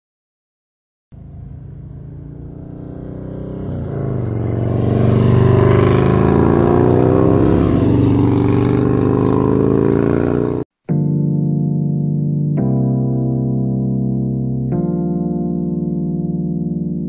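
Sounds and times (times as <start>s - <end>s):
motorcycle engine revving: 1.1s - 10.7s.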